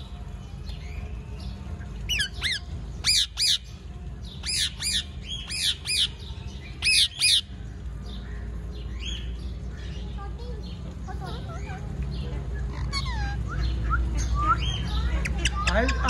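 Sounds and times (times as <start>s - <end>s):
parakeet squawking: 2.1s - 3.7s, 4.4s - 6.2s, 6.8s - 7.5s, 12.6s - 16.0s.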